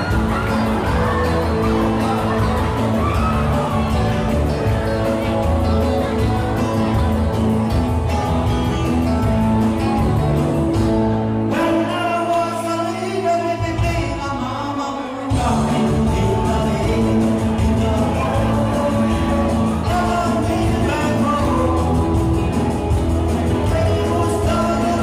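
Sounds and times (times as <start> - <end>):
steady bass: 0.0 - 14.7, 15.3 - 25.0
amplified backing music: 0.0 - 25.0
man singing into a microphone: 11.5 - 25.0.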